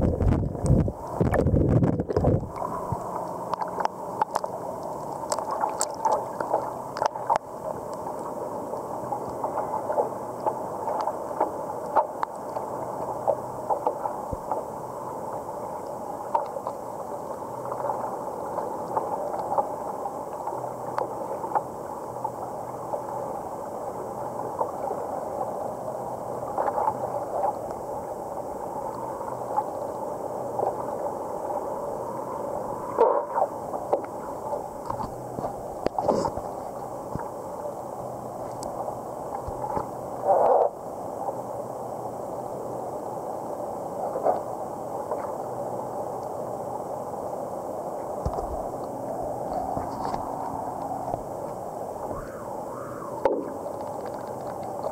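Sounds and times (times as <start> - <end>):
ripples lapping against paddleboard: 0.2 - 14.6, 32.8 - 37.3, 48.2 - 52.5, 53.1 - 54.9.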